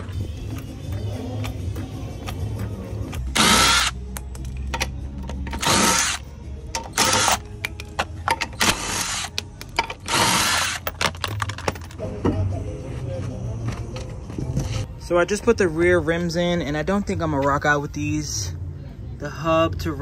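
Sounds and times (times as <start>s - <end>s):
impact wrench bursts: 3.3s - 4.0s, 5.6s - 6.2s, 6.8s - 7.4s, 8.5s - 9.4s, 10.0s - 11.2s.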